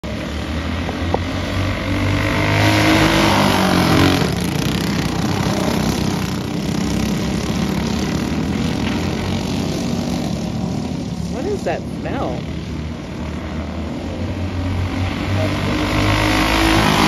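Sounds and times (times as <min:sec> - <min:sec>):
racing kart engines: 0:00.0 - 0:17.0.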